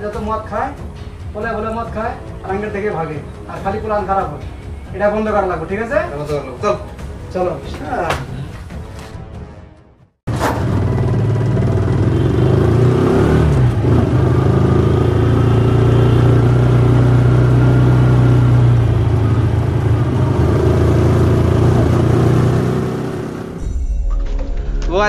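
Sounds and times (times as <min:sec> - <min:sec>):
motorcycle engine running: 0:10.3 - 0:23.6.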